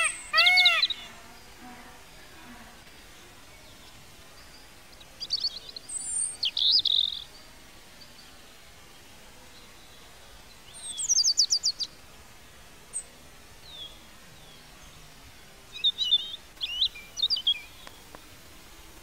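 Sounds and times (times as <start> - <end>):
high descending bird notes: 0.0 - 1.5
twittering bird chirps: 0.0 - 1.5, 3.6 - 8.2, 10.6 - 11.9, 15.7 - 18.0.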